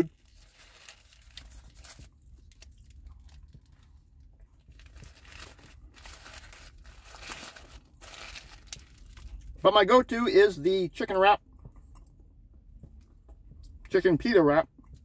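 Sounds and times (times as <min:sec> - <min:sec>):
paper wrapper crinkling: 0:00.1 - 0:03.9, 0:04.7 - 0:09.4
chewing with mouth clicks: 0:11.6 - 0:13.9.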